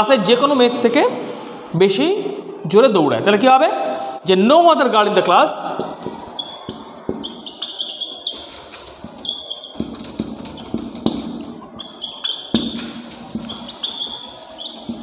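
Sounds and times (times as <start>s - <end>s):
marker pen squeaking on whiteboard: 5.6s - 15.0s.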